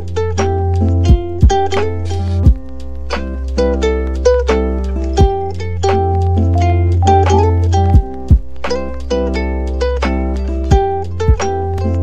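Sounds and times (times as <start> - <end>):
plucked melody: 0.0 - 12.0
deep drum hit: 7.1 - 9.1.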